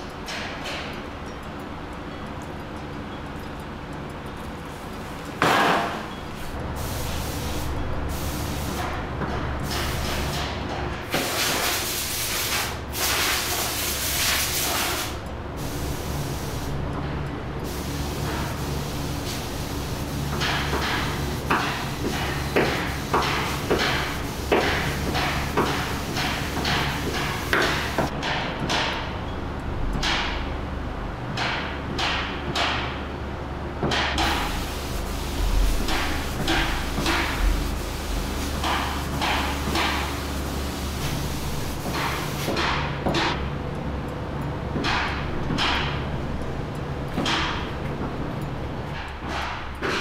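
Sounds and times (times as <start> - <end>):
spray gun hissing: 6.4 - 8.9, 11.2 - 16.7, 17.6 - 28.1, 34.2 - 42.6.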